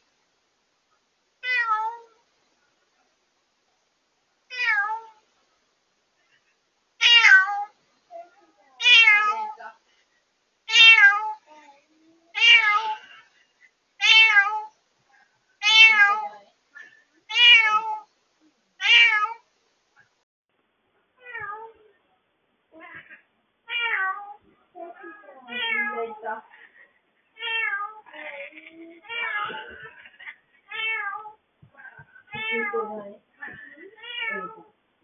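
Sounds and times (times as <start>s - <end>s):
cat meowing loudly: 1.4s - 2.1s, 4.5s - 5.2s, 7.0s - 7.7s, 8.8s - 9.6s, 10.7s - 11.4s, 12.3s - 13.1s, 14.0s - 14.7s, 15.6s - 16.3s, 17.3s - 18.1s, 18.8s - 19.4s, 23.7s - 24.4s, 34.0s - 34.7s.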